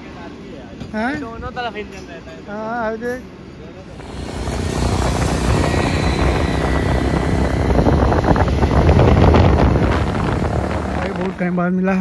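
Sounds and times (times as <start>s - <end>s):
road noise: 0.0s - 12.0s
motorbike engine running: 3.8s - 11.6s
wind buffeting microphone: 3.9s - 12.0s.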